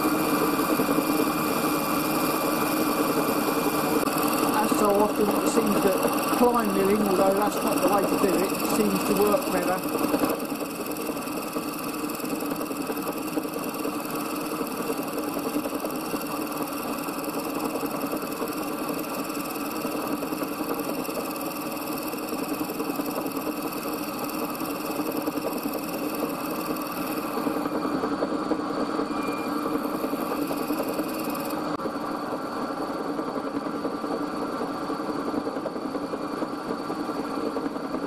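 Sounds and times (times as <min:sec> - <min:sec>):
milling machine cutting brass: 0:00.0 - 0:27.8.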